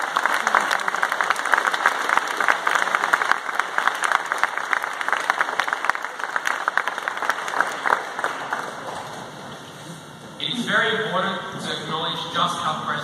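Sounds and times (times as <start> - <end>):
audience applauding: 0.0 - 9.3.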